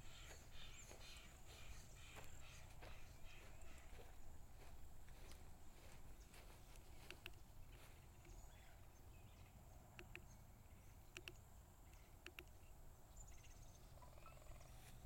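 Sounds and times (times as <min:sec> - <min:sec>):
footfalls on sand and grass: 0:00.2 - 0:08.0.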